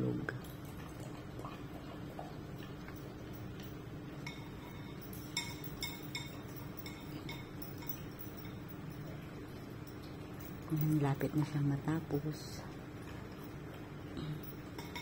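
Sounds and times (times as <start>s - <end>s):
steady low hum: 0.0s - 15.0s
clinks against ceramic bowl: 2.6s - 11.4s, 14.2s - 15.0s.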